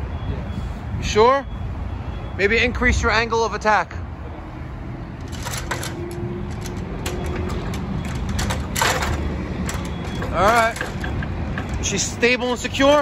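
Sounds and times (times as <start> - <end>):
street traffic rumble: 0.0 - 13.0
ladder knocking and scraping on concrete: 5.2 - 13.0.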